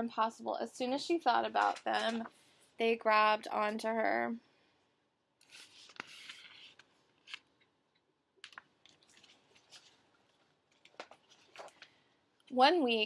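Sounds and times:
paper page rustling: 1.6 - 2.4, 5.4 - 7.7, 8.4 - 12.0.

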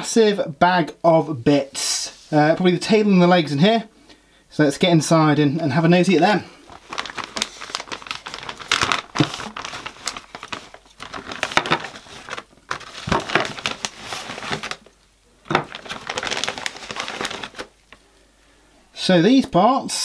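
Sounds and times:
plastic bag crinkling: 6.2 - 18.1.

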